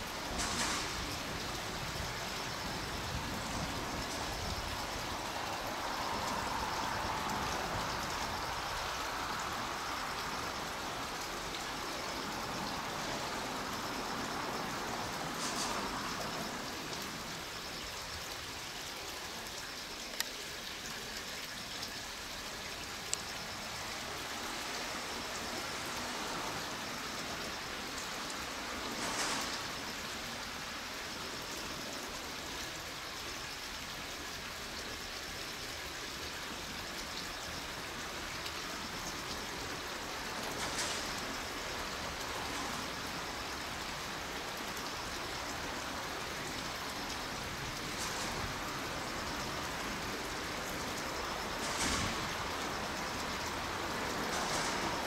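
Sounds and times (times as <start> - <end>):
outdoor background hiss: 0.0 - 55.0.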